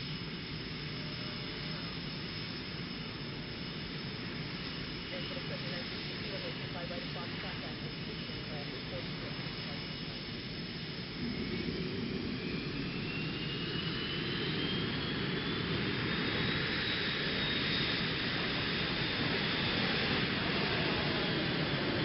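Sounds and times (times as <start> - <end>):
jet engine roar at takeoff: 0.0 - 22.0
rising jet whine: 0.0 - 22.0.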